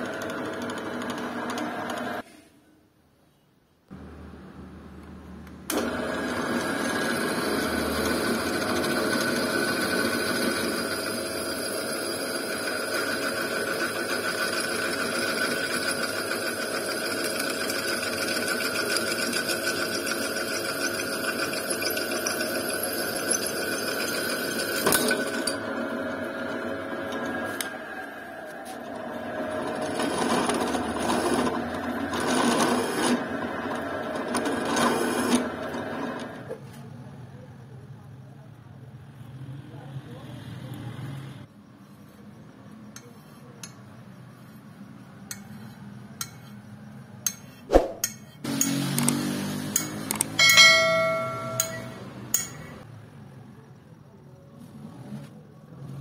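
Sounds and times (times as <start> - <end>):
drill press cutting metal: 5.7 - 27.8, 29.4 - 36.4.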